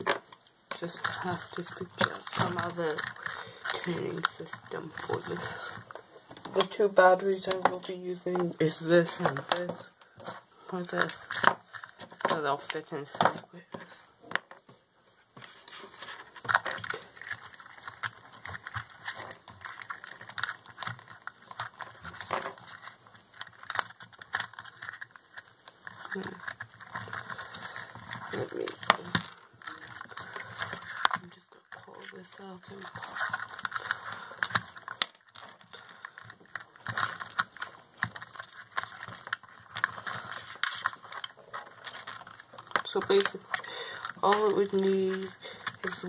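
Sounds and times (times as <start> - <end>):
plastic parts clicking and tapping: 0.0 - 14.8, 15.4 - 46.0.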